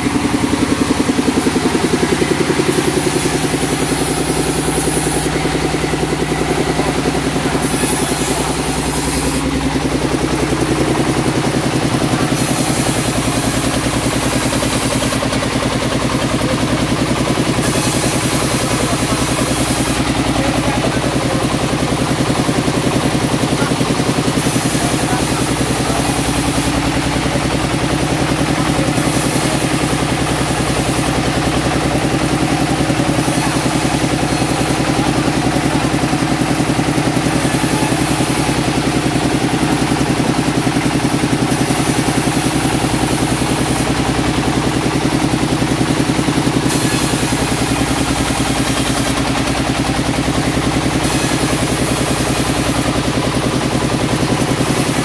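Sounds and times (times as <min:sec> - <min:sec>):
sawmill engine running: 0:00.0 - 0:55.0.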